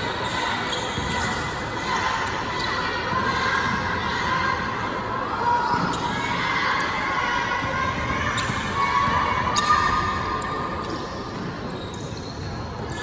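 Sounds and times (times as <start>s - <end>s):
crowd shouting and cheering: 0.0s - 11.6s
basketball bouncing on court: 0.7s - 1.5s.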